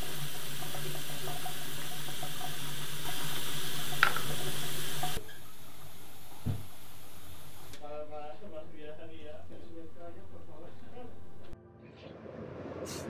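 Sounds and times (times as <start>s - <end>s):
tap water running into basin: 0.0s - 7.8s.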